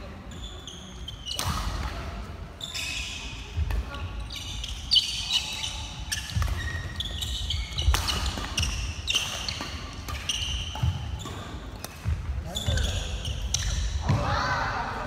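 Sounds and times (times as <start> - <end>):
shoes squeaking: 0.3 - 1.8, 2.6 - 14.1
racket hitting shuttlecock: 5.9 - 12.3.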